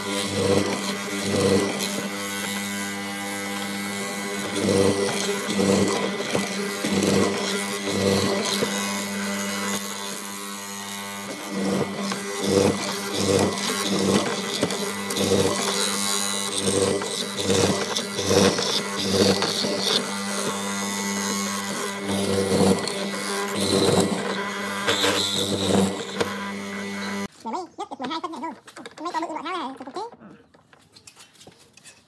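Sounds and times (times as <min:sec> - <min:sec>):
chisel cutting wood: 0:00.0 - 0:27.3
mortiser motor hum: 0:00.0 - 0:27.3.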